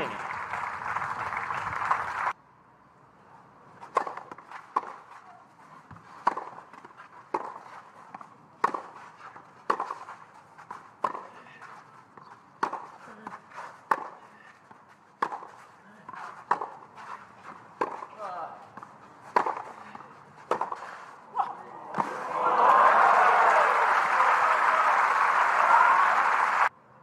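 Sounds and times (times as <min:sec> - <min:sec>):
shoes scuffing on clay: 0:03.8 - 0:21.2
tennis ball hit by racquets: 0:03.8 - 0:22.3.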